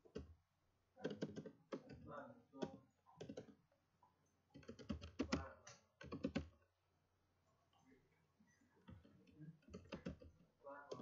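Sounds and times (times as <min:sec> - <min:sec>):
faint keyboard typing: 0:00.0 - 0:00.4, 0:01.0 - 0:06.7, 0:08.6 - 0:11.0.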